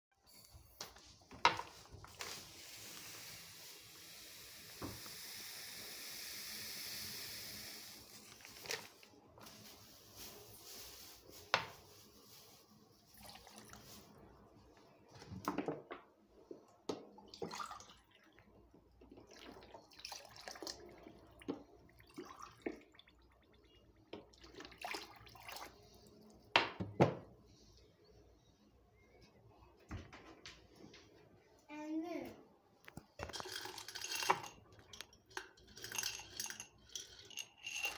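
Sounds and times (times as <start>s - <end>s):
water pouring into metal pot: 19.2s - 25.8s.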